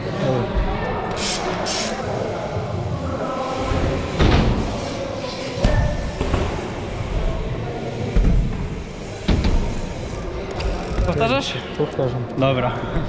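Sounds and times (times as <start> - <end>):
bike tyres rolling on ramps: 2.1 - 11.4.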